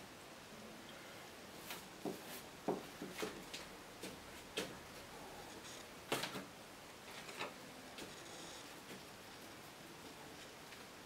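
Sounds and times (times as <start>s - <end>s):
light knocks of painting materials: 1.7s - 4.8s.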